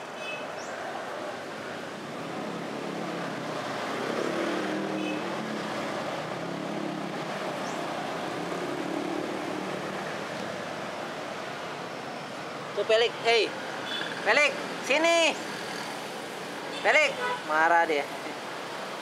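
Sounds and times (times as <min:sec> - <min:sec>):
road traffic: 0:00.0 - 0:19.0.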